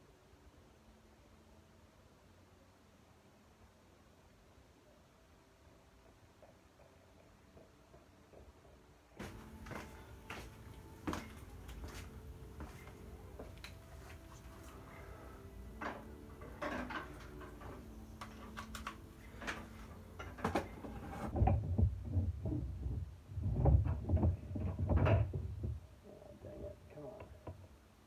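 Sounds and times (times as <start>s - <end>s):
objects picked up and set down: 15.7s - 21.3s
dull bumps and rubbing on microphone: 20.6s - 25.8s.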